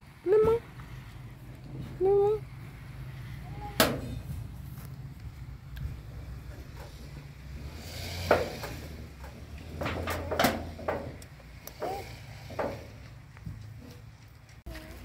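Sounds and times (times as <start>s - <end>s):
sheet-metal door rattling and knocking: 9.8s - 11.2s.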